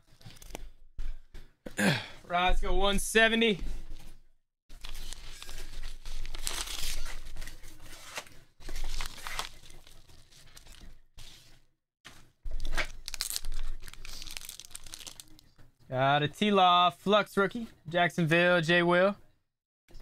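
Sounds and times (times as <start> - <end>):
paper tearing and crinkling: 4.7 - 11.5, 12.5 - 15.4.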